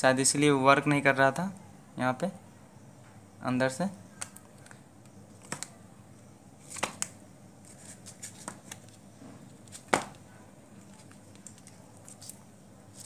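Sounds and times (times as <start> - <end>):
fingers handling thin wires: 10.8 - 13.0.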